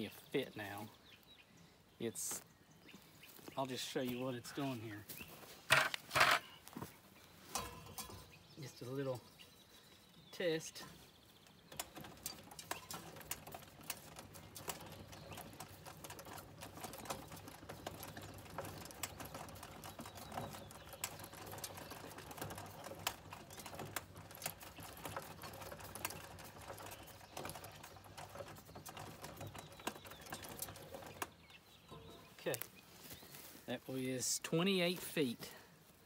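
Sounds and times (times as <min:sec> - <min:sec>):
planter seed meter clicking and rattling: 0:05.7 - 0:06.8, 0:07.5 - 0:09.4, 0:10.2 - 0:35.6.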